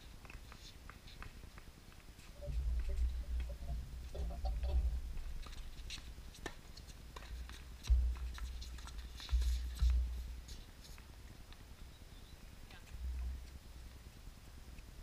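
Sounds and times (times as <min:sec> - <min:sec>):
wind rumble on microphone: 0:02.3 - 0:15.0
rackets striking tennis ball: 0:04.3 - 0:11.1.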